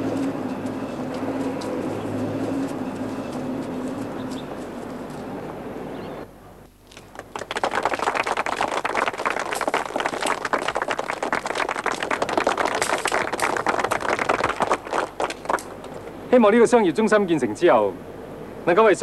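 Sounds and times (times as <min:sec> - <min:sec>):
crowd applauding: 0:07.0 - 0:15.9.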